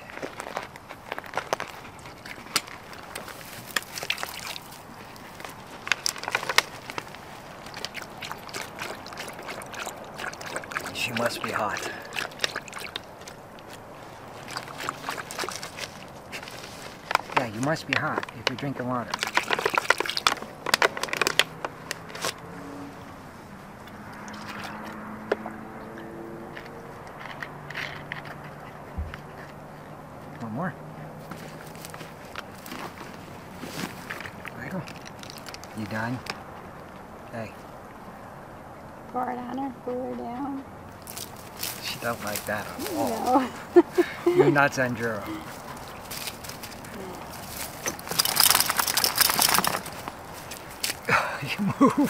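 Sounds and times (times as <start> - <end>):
dog lapping water: 3.8 - 4.8, 7.5 - 16.4, 19.2 - 21.3.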